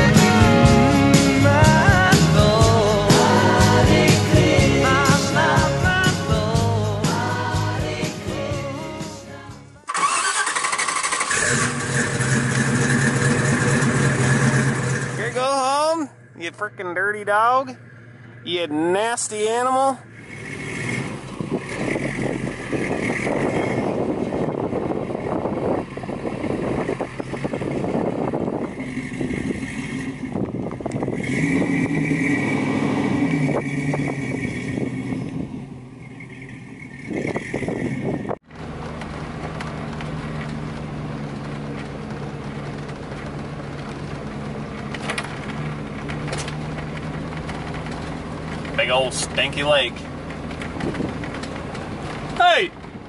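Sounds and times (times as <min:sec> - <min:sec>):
engine drone inside cab: 0:00.0 - 0:07.8, 0:09.8 - 0:53.0
vehicle engine running under load: 0:09.9 - 0:53.0.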